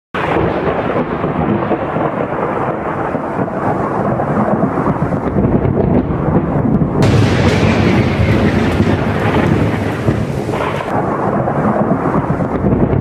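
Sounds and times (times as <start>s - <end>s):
rumbling thunder: 5.3s - 11.0s
steady rain: 7.0s - 11.0s.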